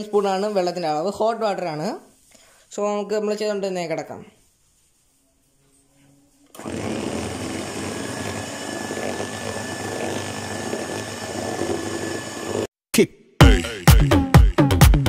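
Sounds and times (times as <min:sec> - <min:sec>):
electric hand mixer running: 0:06.6 - 0:12.7
music with a beat: 0:13.4 - 0:15.0.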